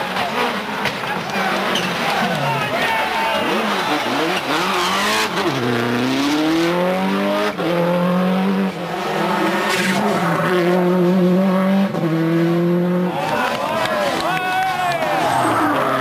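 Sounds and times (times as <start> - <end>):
rally car engine revving hard: 3.3 - 13.2.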